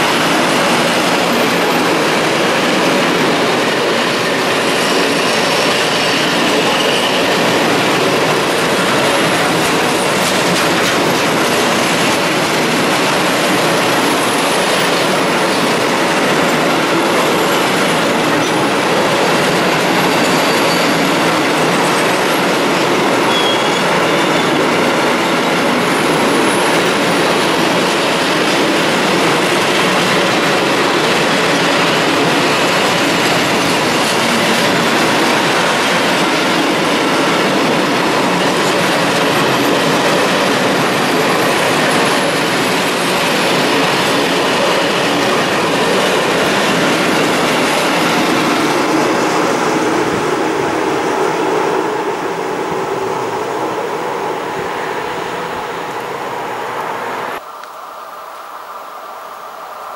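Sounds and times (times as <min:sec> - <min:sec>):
freight train wheels clattering: 0:00.0 - 0:53.3
faint wheel squeal: 0:23.3 - 0:24.6.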